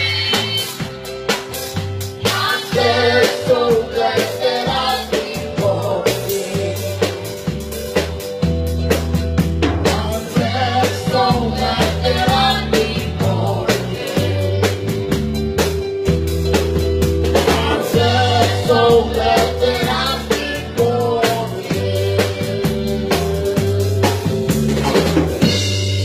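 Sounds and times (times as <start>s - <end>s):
deep bass notes: 0.0s - 26.0s
drum kit: 0.0s - 26.0s
person singing into a microphone: 17.4s - 24.2s.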